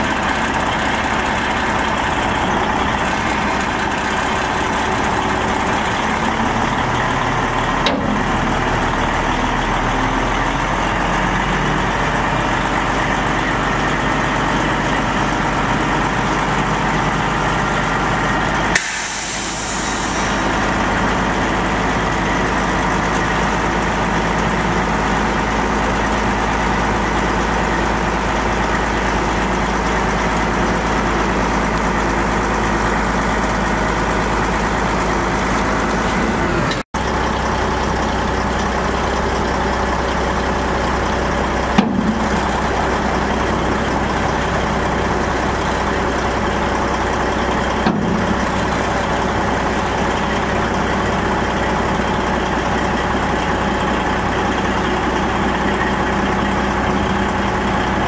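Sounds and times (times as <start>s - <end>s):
diesel truck idling: 0.0s - 58.0s
compressed air hiss: 18.8s - 20.4s.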